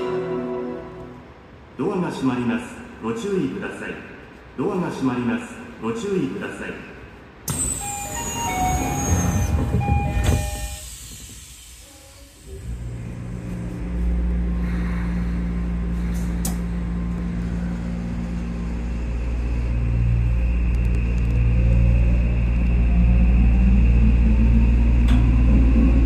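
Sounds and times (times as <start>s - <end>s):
train low rumble: 0.0s - 26.0s
rising motor whine: 12.5s - 26.0s.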